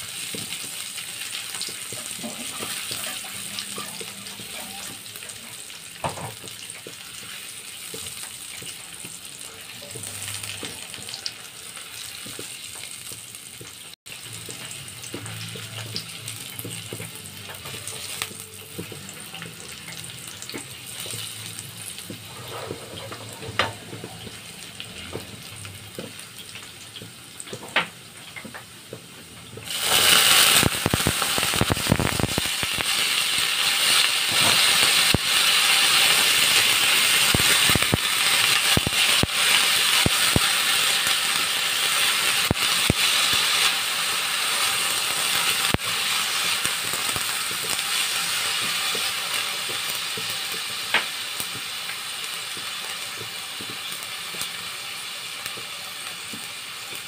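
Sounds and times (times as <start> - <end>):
vegetables sizzling in oil: 0.0 - 57.0
spatula scraping a wok: 20.9 - 24.5.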